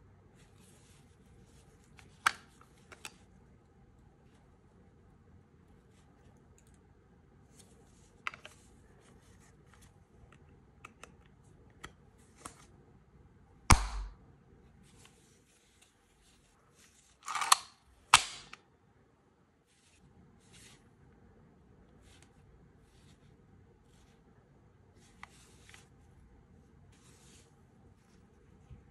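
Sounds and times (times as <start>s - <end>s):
sharp pistol clack: 13.7s - 14.1s.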